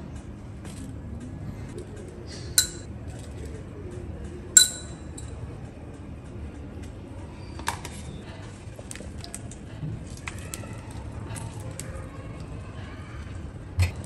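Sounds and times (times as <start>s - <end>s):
spoon tapping steel plate: 2.6s - 2.9s, 4.6s - 5.3s.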